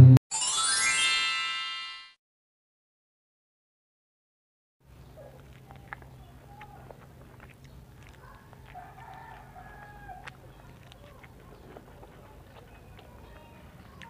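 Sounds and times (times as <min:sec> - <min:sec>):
teeth biting corn kernels: 0:05.2 - 0:14.0
faint rooster crowing: 0:08.2 - 0:10.4.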